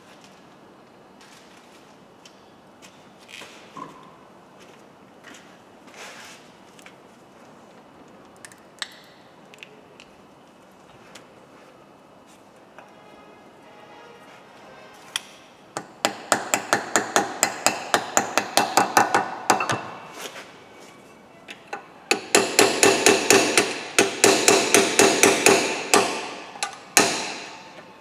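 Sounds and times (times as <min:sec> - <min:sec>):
hammer striking metal wheel hub: 0:15.8 - 0:20.0, 0:22.1 - 0:27.8.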